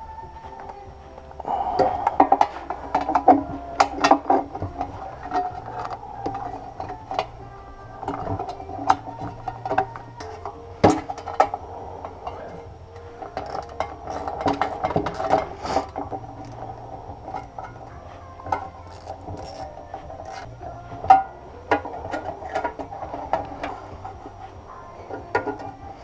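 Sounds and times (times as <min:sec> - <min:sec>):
metal parts clinking: 0:13.2 - 0:20.5.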